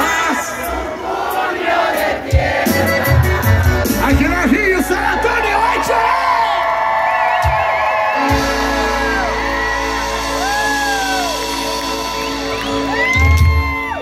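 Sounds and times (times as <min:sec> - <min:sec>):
accordion chords: 0:00.0 - 0:05.5, 0:07.4 - 0:14.0
band playing live: 0:00.0 - 0:14.0
crowd whistling and whooping: 0:05.0 - 0:14.0.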